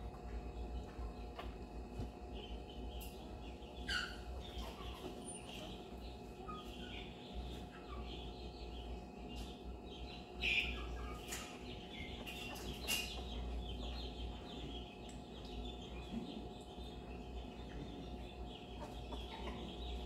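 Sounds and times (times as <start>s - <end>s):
puppies squeaking and whimpering: 3.8s - 5.8s.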